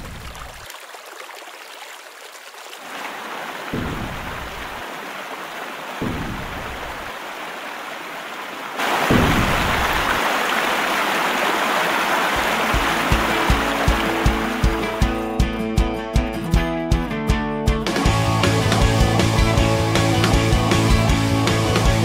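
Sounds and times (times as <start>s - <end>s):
river rapids roaring: 2.8s - 15.0s
music beat: 6.0s - 6.8s, 12.8s - 17.1s.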